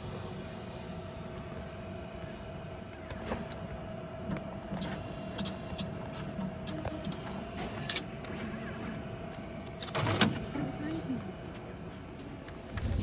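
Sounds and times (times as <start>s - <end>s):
steady hum: 0.0s - 13.0s
cash dispenser clicking and whirring: 3.0s - 13.0s.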